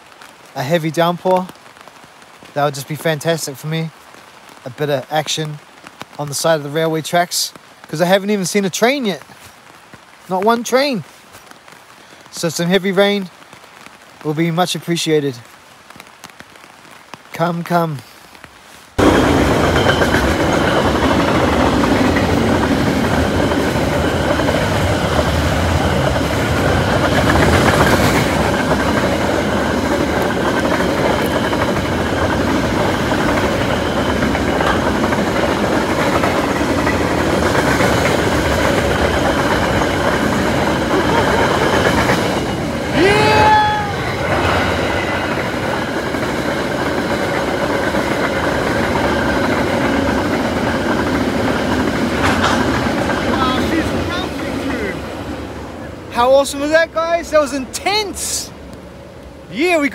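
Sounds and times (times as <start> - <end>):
train wheels rumbling on rails: 19.0 - 59.9.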